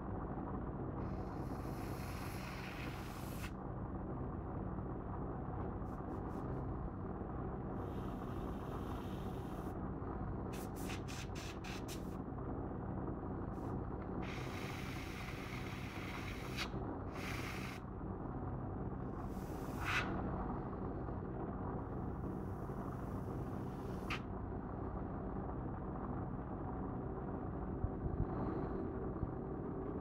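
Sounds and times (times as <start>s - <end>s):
steady low hum: 0.0s - 30.0s
airbrush hissing: 1.0s - 3.5s, 7.8s - 9.7s, 10.6s - 12.2s, 14.2s - 17.8s, 19.2s - 20.2s, 22.3s - 24.2s.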